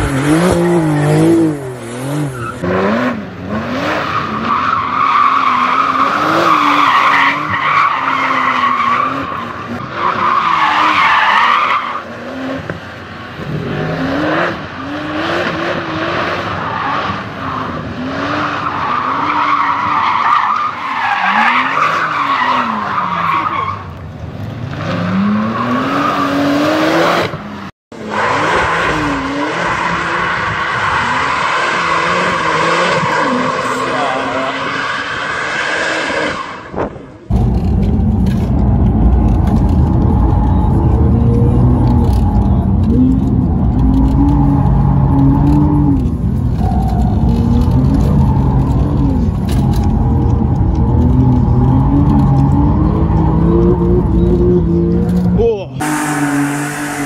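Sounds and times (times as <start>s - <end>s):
car engine revving: 0.0s - 20.2s, 28.0s - 57.0s
another car doing donuts: 0.0s - 57.0s
tyres squealing on pavement: 4.0s - 12.3s, 16.5s - 24.0s, 28.0s - 57.0s.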